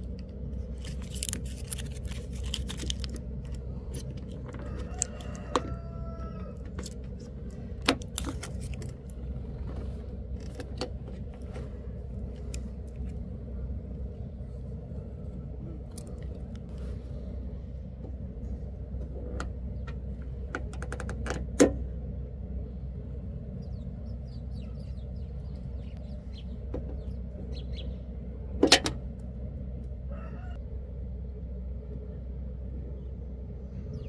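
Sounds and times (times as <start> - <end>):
steady low hum: 0.0 - 34.0.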